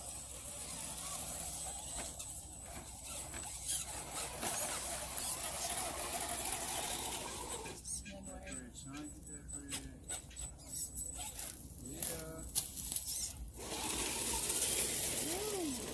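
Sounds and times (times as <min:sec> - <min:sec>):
electric motor whining: 0:00.0 - 0:08.4, 0:13.0 - 0:15.9.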